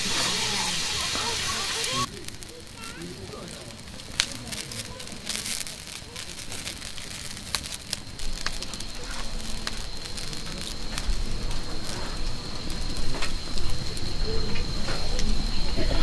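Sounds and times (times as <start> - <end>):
oil sizzling on a griddle: 0.0 - 16.0
wood fire crackling and popping: 0.0 - 16.0.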